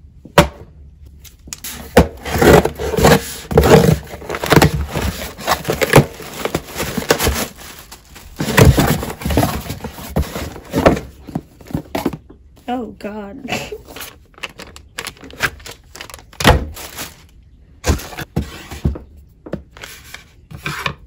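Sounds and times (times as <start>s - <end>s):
plastic packaging rustling: 1.5s - 12.2s, 13.8s - 18.9s
cardboard scraping and ripping: 1.6s - 12.2s, 13.9s - 19.0s.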